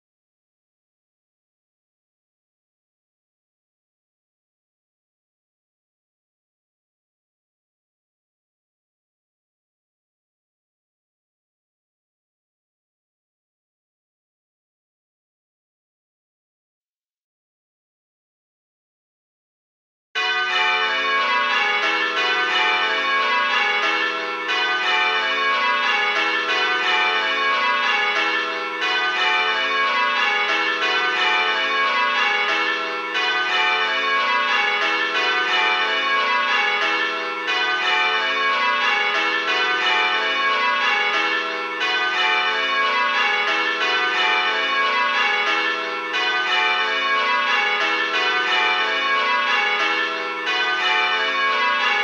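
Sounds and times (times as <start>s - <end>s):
tower bells change-ringing: 20.2s - 52.0s.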